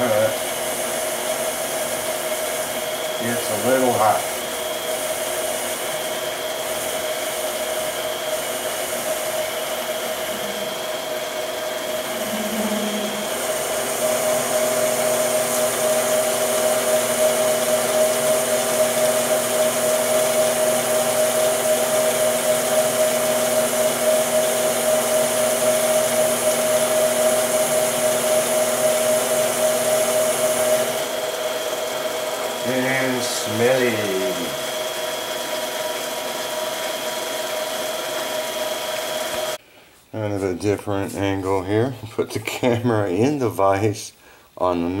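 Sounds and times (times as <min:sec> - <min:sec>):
lathe motor whine: 0:00.0 - 0:39.6.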